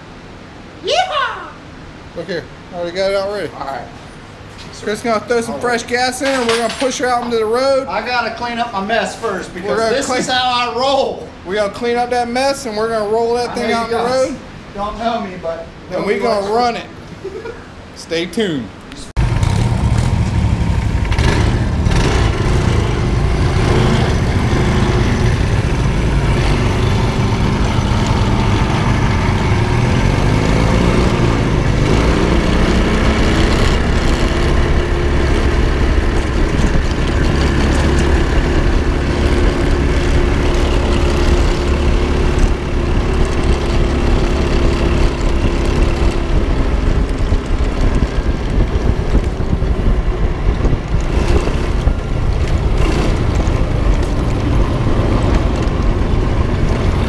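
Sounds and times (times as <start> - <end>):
single-cylinder engine running: 19.2 - 57.0.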